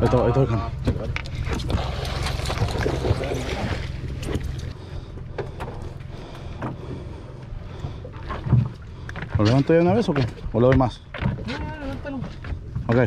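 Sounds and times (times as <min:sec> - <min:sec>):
boat engine rumble: 0:00.0 - 0:13.0
small splashes: 0:01.3 - 0:04.8.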